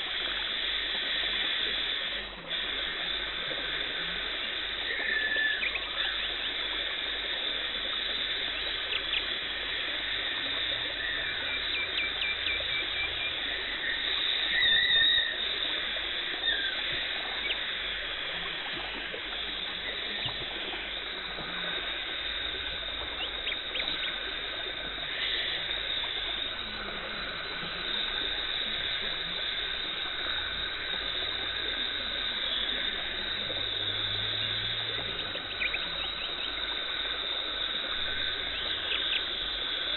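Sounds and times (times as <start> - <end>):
dental suction and water spray hiss: 0.0 - 5.6
squeaky chirps and gurgles: 10.7 - 17.8.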